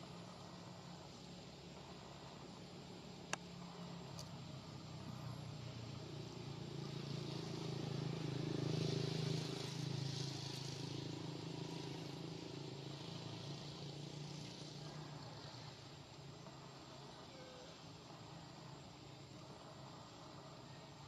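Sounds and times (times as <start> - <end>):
distant vehicle engine passing: 5.0 - 15.9.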